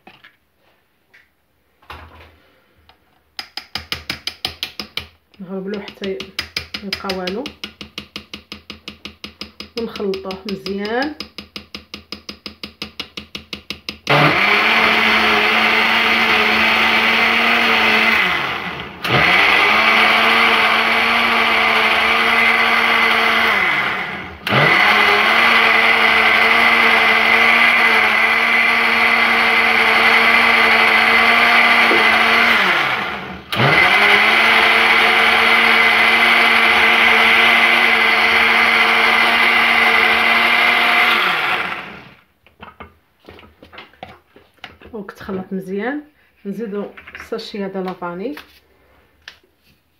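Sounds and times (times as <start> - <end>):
electric blender motor hum: 14.1 - 42.2.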